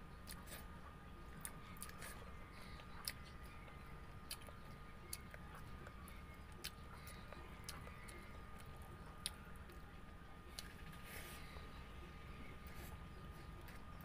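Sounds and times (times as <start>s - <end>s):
person chewing food: 0.2s - 0.7s, 1.3s - 9.8s.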